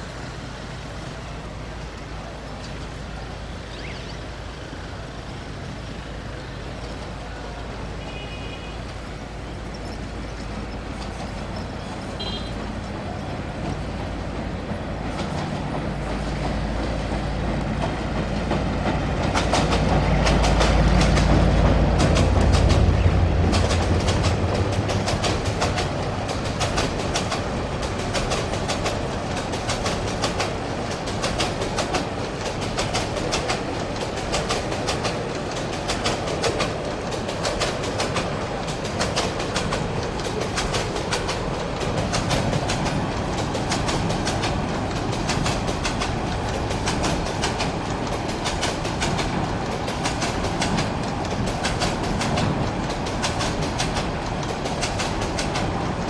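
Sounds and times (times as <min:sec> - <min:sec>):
freight train wheels clickety-clack: 0:00.0 - 0:56.0.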